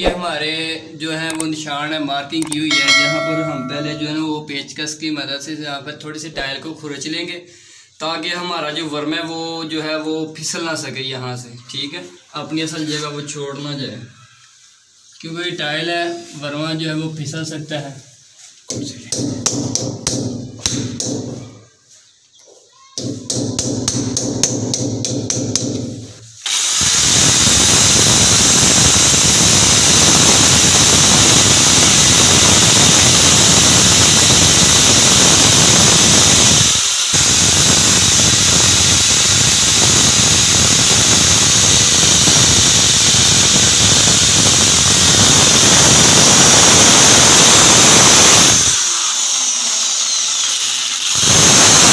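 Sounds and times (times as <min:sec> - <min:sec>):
electric drill boring into tile: 0:26.4 - 0:51.9.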